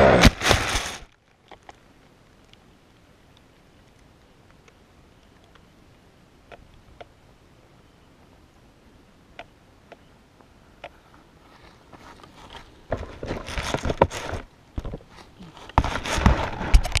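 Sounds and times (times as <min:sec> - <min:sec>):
dry grass crunching underfoot: 0:00.0 - 0:01.7, 0:11.4 - 0:17.0
faint clicks: 0:01.3 - 0:07.1.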